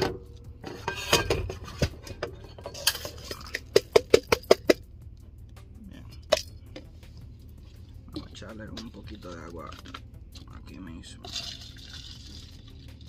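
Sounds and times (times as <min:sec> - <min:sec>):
plastic cup knocking metal pot: 0:03.3 - 0:04.8.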